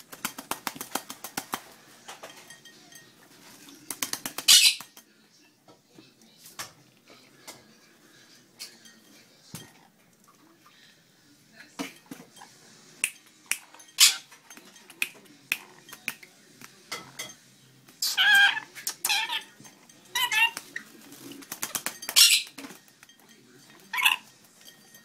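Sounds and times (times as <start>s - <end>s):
parrot harsh wavering calls: 18.0s - 19.5s, 22.2s - 22.5s.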